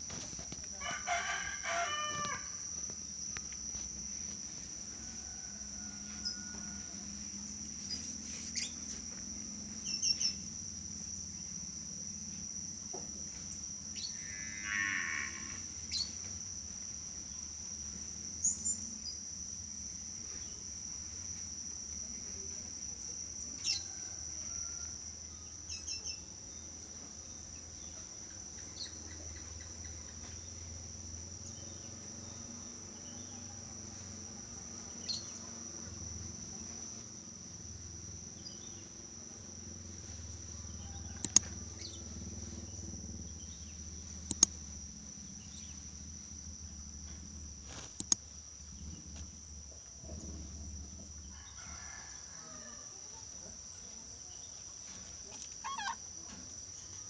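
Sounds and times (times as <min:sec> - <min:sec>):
insect trilling: 0:13.9 - 0:16.3, 0:38.4 - 0:48.3, 0:55.2 - 0:56.3
short sharp clicks: 0:44.3 - 0:44.5.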